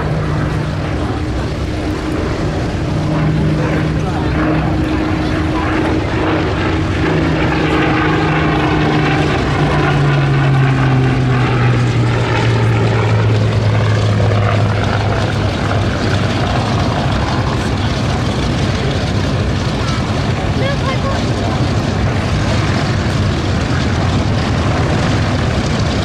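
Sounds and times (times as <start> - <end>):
propeller aircraft passing by: 0.0 - 26.0.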